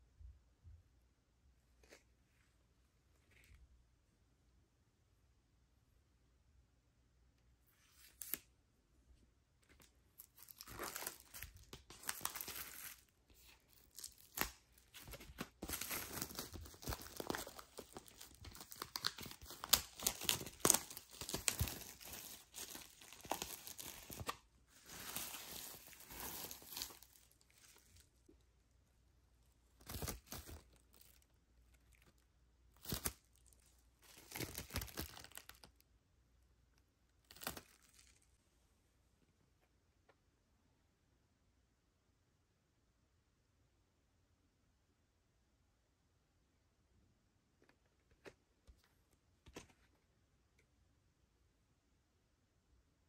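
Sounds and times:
plastic wrap crinkling and tearing: 10.1s - 28.0s, 29.8s - 32.2s, 32.8s - 35.8s, 37.2s - 38.3s.

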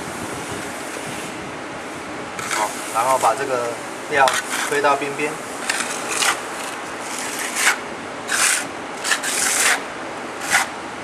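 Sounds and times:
trowel scraping wet cement: 2.4s - 3.4s, 4.2s - 5.0s, 5.6s - 9.8s, 10.4s - 10.7s.

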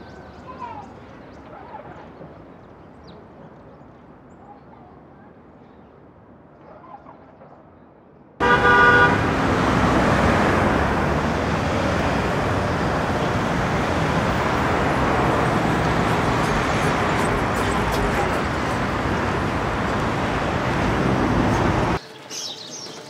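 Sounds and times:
city traffic noise: 0.0s - 6.5s, 8.4s - 23.0s
rural village ambience: 0.0s - 23.0s
vehicle horn honking: 8.4s - 11.0s, 12.0s - 22.0s.

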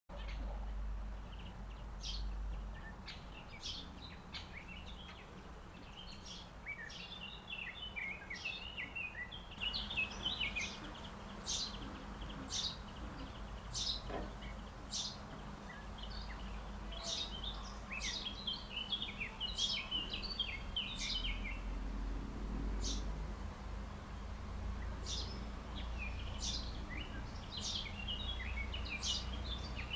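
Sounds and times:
low steady rumble: 0.1s - 7.4s
songbirds chirping: 0.1s - 29.9s.

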